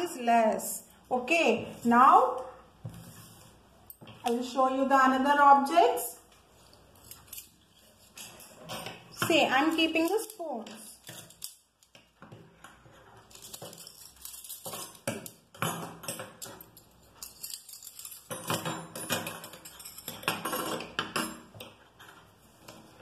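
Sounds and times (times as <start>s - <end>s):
metal spoons clinking on wood: 13.3s - 21.5s.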